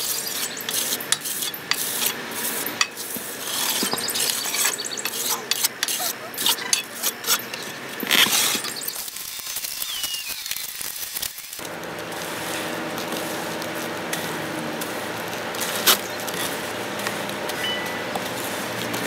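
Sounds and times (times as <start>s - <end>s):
board pushed through concrete: 0.0s - 9.1s
trowel scraping wet concrete: 0.0s - 10.4s, 15.5s - 17.7s.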